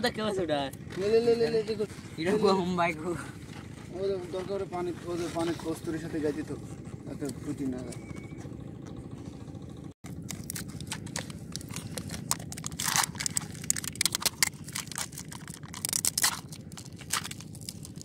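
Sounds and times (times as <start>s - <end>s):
foil lids peeling and tearing: 10.1s - 18.0s
plastic cups crackling: 10.1s - 18.0s.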